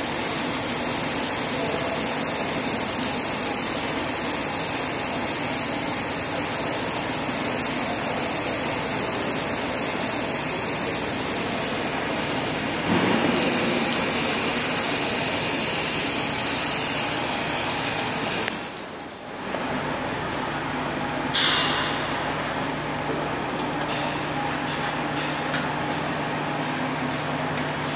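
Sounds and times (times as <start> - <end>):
welding arc hiss: 0.0 - 20.7.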